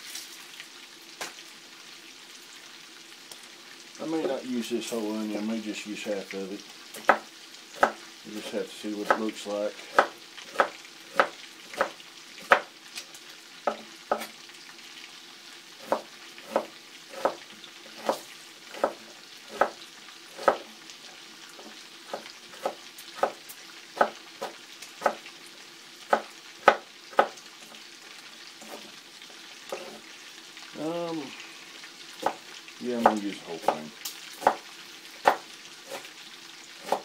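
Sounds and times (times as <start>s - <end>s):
knife chopping on wooden board: 7.0s - 8.0s, 9.0s - 9.2s, 9.9s - 12.7s, 13.7s - 14.3s, 15.8s - 19.8s, 20.4s - 20.7s, 21.6s - 23.4s, 24.0s - 25.2s, 26.1s - 27.4s, 29.7s - 30.0s, 32.2s - 32.4s, 34.4s - 34.6s, 35.2s - 36.1s, 36.8s - 37.0s.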